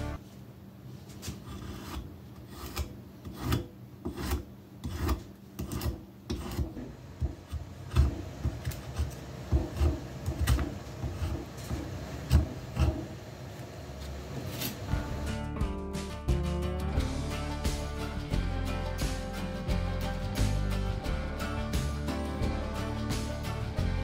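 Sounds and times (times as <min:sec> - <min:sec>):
spokeshave scraping wood: 0:01.1 - 0:06.9.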